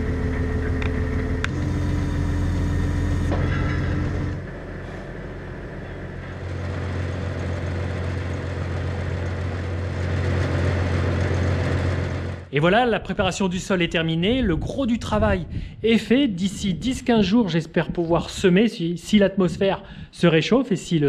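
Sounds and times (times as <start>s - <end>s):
tractor diesel engine running: 0.0s - 16.2s.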